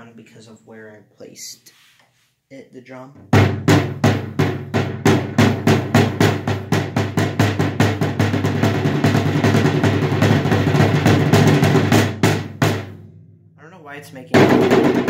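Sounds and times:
snare drum strokes and roll: 3.3s - 13.0s, 14.3s - 15.0s.

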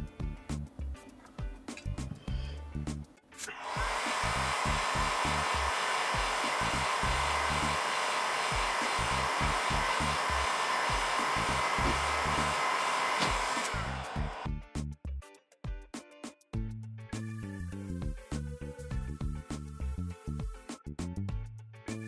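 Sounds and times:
funky music with bass line: 0.0s - 3.2s, 14.4s - 22.0s
heat gun blowing: 3.6s - 14.5s.

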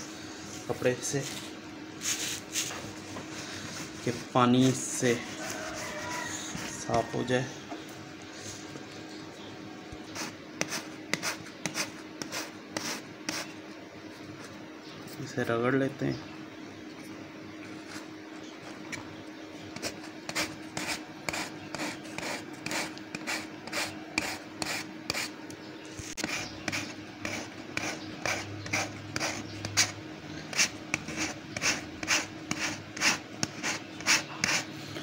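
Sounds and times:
sandpaper rasping on rubber tube: 19.8s - 25.3s, 26.2s - 34.7s.

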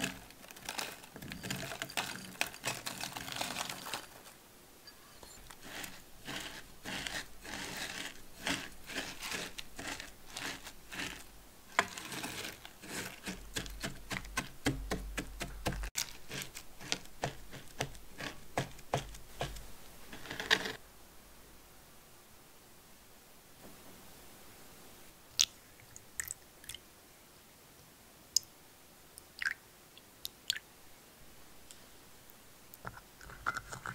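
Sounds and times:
masher crunching biscuit crumbs: 0.0s - 4.4s, 5.3s - 19.6s.

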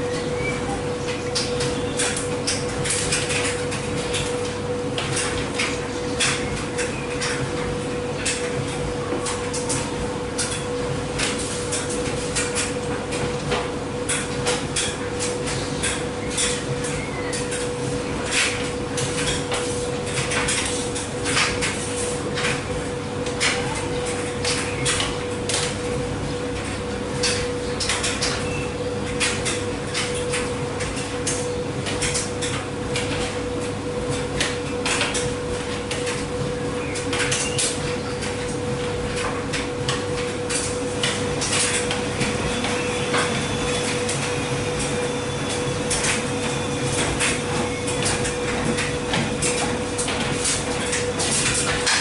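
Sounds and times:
washer motor hum: 0.0s - 52.0s.

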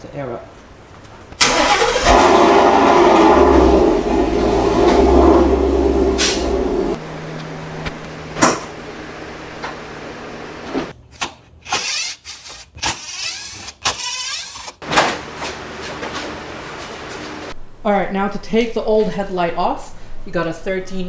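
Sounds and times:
electric compressor hum: 0.8s - 11.0s, 14.8s - 20.4s
air hissing: 3.5s - 7.0s.

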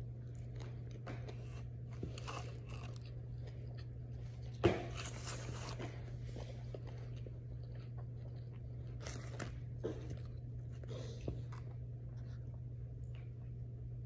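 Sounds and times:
person chewing sandwich: 0.0s - 13.7s
steady low hum: 0.0s - 14.0s
crunchy bite: 1.9s - 4.0s.

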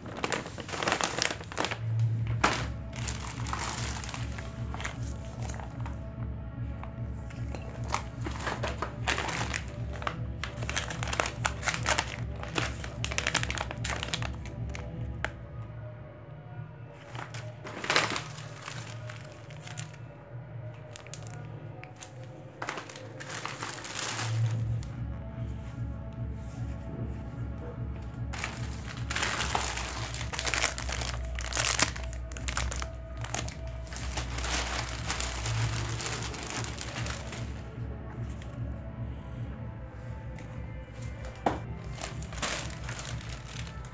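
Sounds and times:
plastic bags crinkling: 0.0s - 6.0s, 7.3s - 15.0s, 17.0s - 20.0s, 20.8s - 25.0s, 28.3s - 37.8s, 41.2s - 43.9s
background music with low beat: 0.0s - 43.9s.

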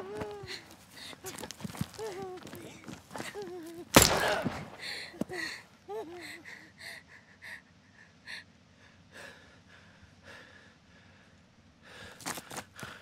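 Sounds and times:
person breathing hard: 4.7s - 13.0s.

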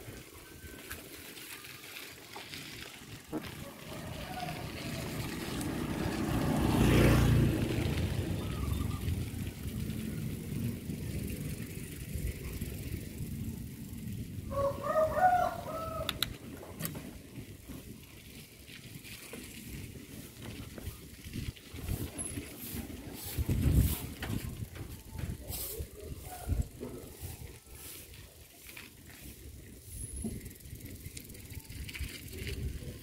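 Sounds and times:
motor scooter passing: 0.0s - 16.6s, 17.2s - 33.0s
rooster crowing: 3.5s - 5.6s, 14.5s - 16.2s.

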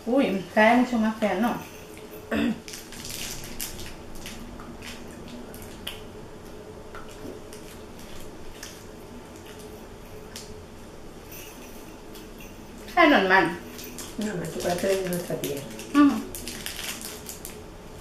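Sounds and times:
faint steady hum: 0.0s - 18.0s
candy wrappers crinkling: 1.9s - 6.1s, 12.0s - 18.0s.

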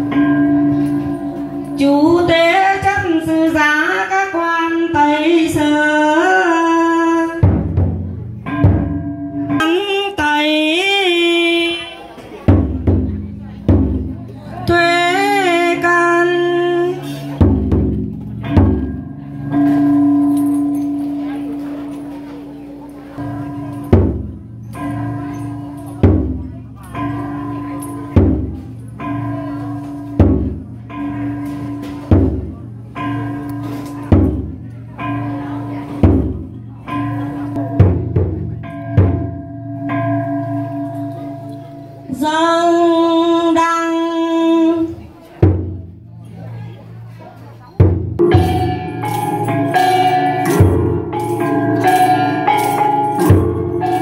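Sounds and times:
percussion strikes with ringing tones: 0.0s - 54.0s
barrel drum booms: 7.4s - 9.1s, 12.5s - 14.3s, 17.2s - 21.1s, 23.3s - 26.5s, 28.0s - 28.7s, 29.8s - 32.8s, 33.6s - 34.6s, 35.8s - 39.5s, 45.4s - 46.1s, 47.8s - 54.0s
long held melodic notes: 48.2s - 54.0s.

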